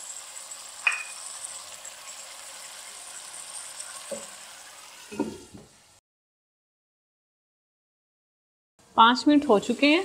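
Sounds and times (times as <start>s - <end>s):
chicken sizzling in a pan: 0.0s - 6.0s.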